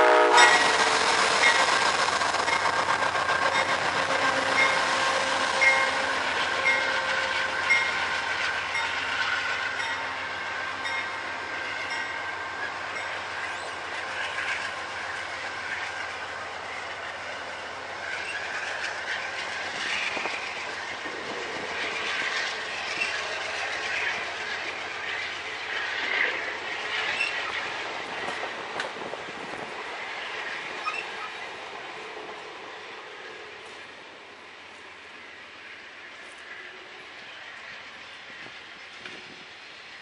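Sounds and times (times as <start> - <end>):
train wheels clacking over joints: 0.3 - 12.2
high-pitched wheel squealing: 30.8 - 31.4.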